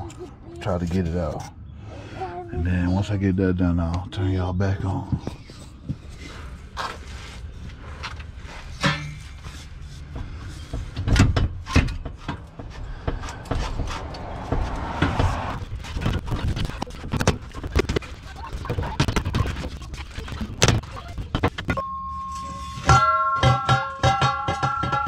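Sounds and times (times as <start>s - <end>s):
metal pipe scraping: 6.1s - 11.0s.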